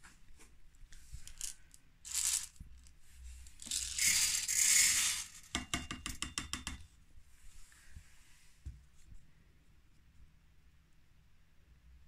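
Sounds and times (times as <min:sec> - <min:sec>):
plastic cup clicks and clatters: 0:01.3 - 0:02.8, 0:03.6 - 0:06.8.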